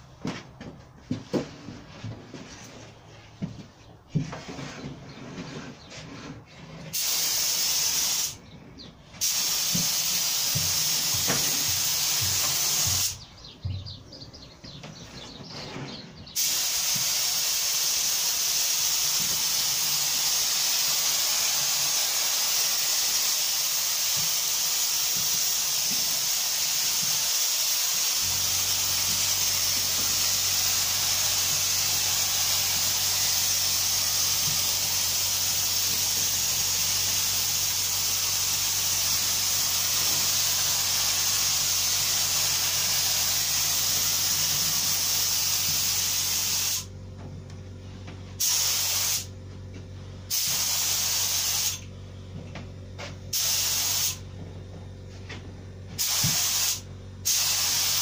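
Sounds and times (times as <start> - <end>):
spray gun hissing: 6.9 - 8.4, 9.2 - 13.2, 16.4 - 46.9, 48.4 - 49.3, 50.3 - 51.8, 53.3 - 54.2, 56.0 - 58.0
low steady hum: 46.9 - 48.4, 51.8 - 53.4, 54.2 - 56.0.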